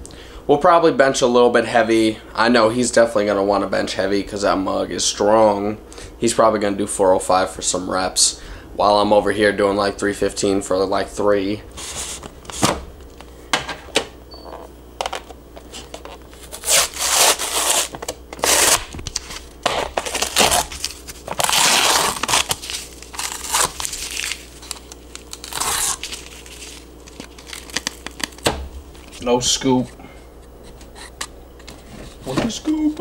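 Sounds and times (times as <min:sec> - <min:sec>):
foil seal tearing and crinkling: 0:15.7 - 0:29.1.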